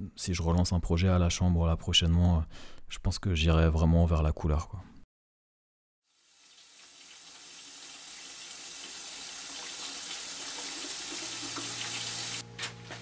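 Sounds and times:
tap water running into sink: 6.2s - 12.4s.

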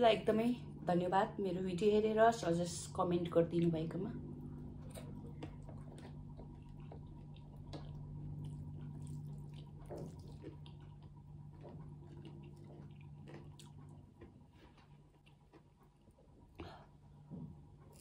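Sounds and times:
low hum: 0.0s - 18.0s
chewing: 4.4s - 17.0s, 17.7s - 18.0s
wet squishing of hand mixing food: 4.5s - 16.6s.

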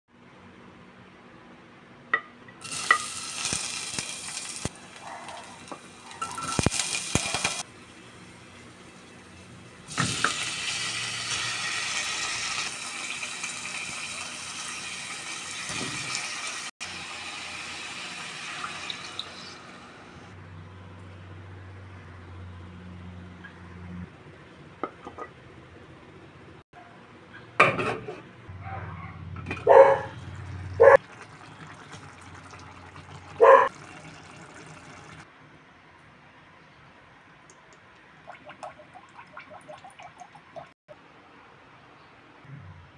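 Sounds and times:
fish sizzling in hot oil: 2.6s - 4.8s, 5.5s - 7.7s, 9.9s - 19.6s
dog barking: 5.0s - 6.4s, 28.6s - 30.2s, 30.8s - 31.0s, 33.4s - 33.7s
pot of soup boiling: 30.4s - 35.3s.

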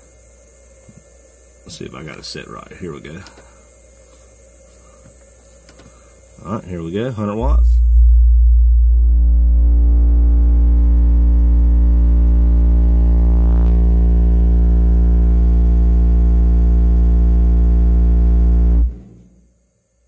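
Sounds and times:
deep bass test tone: 6.8s - 19.4s.

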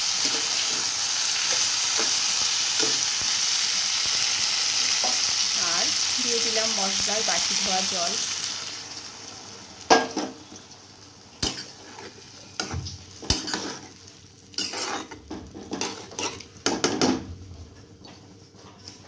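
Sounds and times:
spoon scraping a pan: 11.4s - 14.0s, 14.6s - 16.5s.

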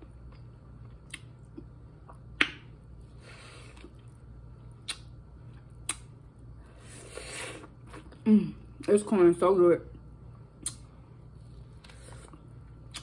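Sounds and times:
wet mouth smacks eating: 1.0s - 2.7s, 4.8s - 5.1s, 5.8s - 6.1s, 10.6s - 10.9s, 11.8s - 13.0s.

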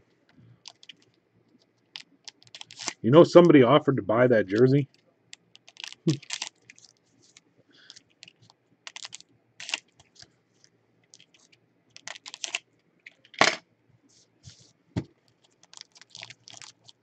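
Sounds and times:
foil wrapper crinkling: 0.6s - 3.5s, 5.3s - 10.3s, 11.0s - 13.3s, 15.2s - 17.0s.

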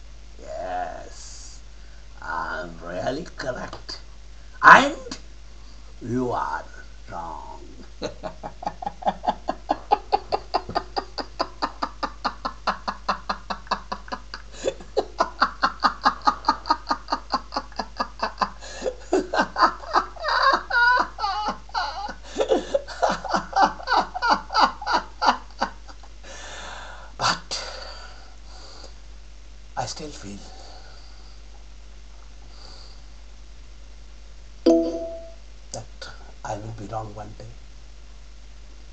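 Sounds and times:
man laughing: 7.2s - 25.9s.

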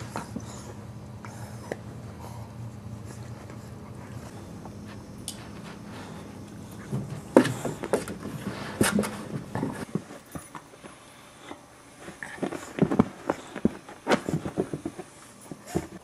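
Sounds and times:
dogs play-fighting scuffles: 12.0s - 16.0s.

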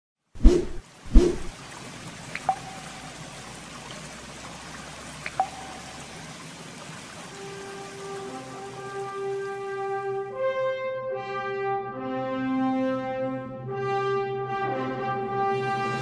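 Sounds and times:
drip-like pings: 2.4s - 3.1s, 5.3s - 6.0s
held brass-like music tones: 7.3s - 16.0s.

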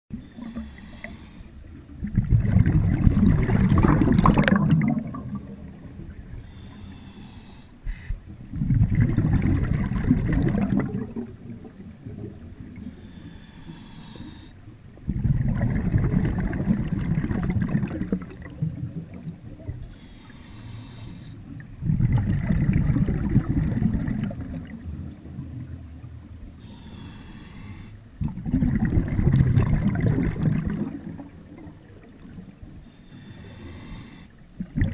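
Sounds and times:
regulator hissing inhale: 0.1s - 1.7s, 6.3s - 8.2s, 12.8s - 14.6s, 19.8s - 21.6s, 26.6s - 28.1s, 32.8s - 34.4s
exhaled bubbles rushing: 1.8s - 6.3s, 8.5s - 12.9s, 15.0s - 19.9s, 21.6s - 25.9s, 28.2s - 32.7s, 34.6s - 34.9s.

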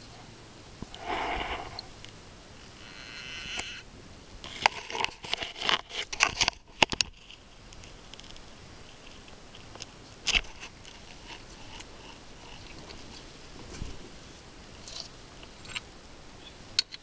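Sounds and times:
frog squealing: 2.8s - 3.8s
sharp clicks and crackles: 4.4s - 13.9s.

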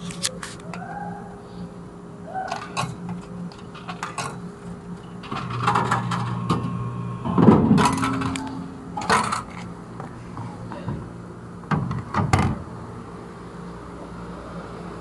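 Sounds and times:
vending machine mechanism hum: 0.0s - 15.0s
heavy clunk and rattle: 5.2s - 9.6s
coins clicking and clinking: 7.8s - 9.6s.

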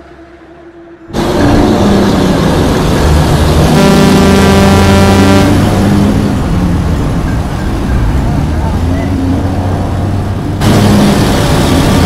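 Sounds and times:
car engine and road noise: 0.0s - 12.0s
deep car horn blast: 3.6s - 6.4s.

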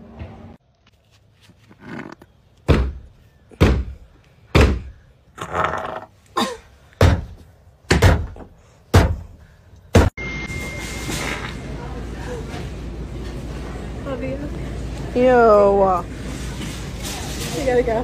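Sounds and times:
fist pounding on plastic door: 4.5s - 4.9s, 7.9s - 9.2s.

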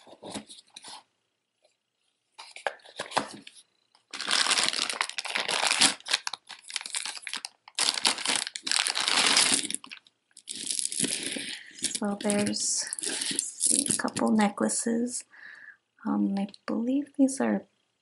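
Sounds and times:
crinkly wrapping crumpled: 0.0s - 1.0s, 2.4s - 14.4s.

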